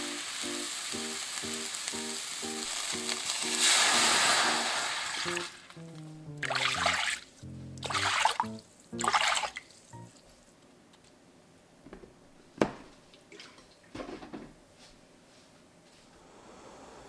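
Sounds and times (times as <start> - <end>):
water pouring into metal pan: 2.7 - 5.7, 6.4 - 7.2, 7.8 - 8.4.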